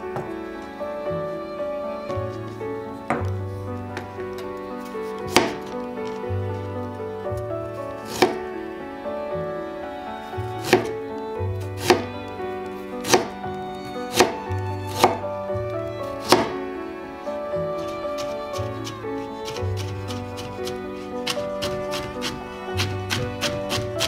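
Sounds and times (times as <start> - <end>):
background music: 0.0 - 24.0
knife chopping on cutting board: 5.3 - 5.6, 8.1 - 8.4, 10.6 - 10.9, 11.8 - 12.0, 13.1 - 13.3, 14.1 - 14.4, 16.3 - 16.5, 19.4 - 24.0.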